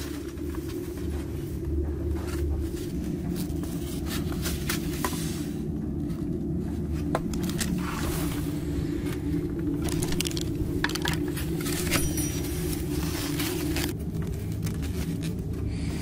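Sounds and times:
low rumble: 0.0s - 16.0s
foam boxes clicking and scraping: 7.0s - 16.0s.

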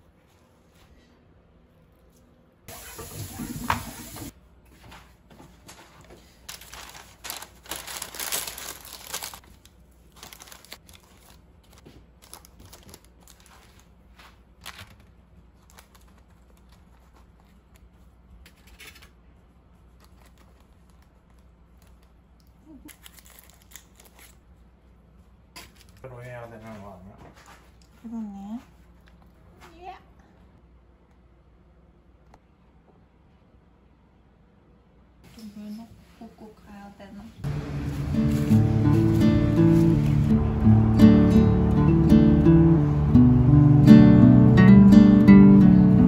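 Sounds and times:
rustling and crinkling: 4.7s - 24.5s.

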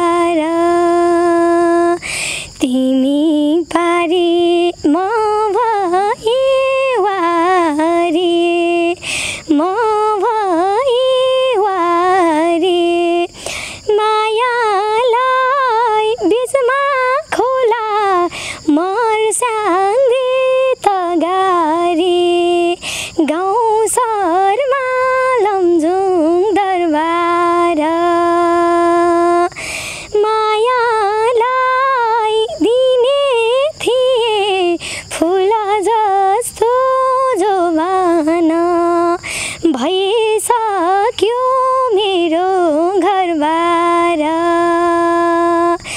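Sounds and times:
woman singing unaccompanied: 0.0s - 45.9s
singer breathing: 2.0s - 2.6s, 9.0s - 9.4s, 13.3s - 13.9s, 18.3s - 18.7s, 22.8s - 23.2s, 29.6s - 30.2s, 34.8s - 35.1s, 39.2s - 39.7s.

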